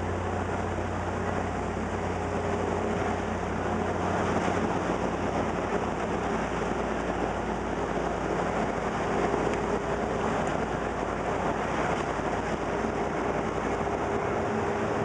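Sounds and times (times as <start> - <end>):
boat wake water rushing: 0.0 - 15.0
low engine drone: 0.0 - 15.0.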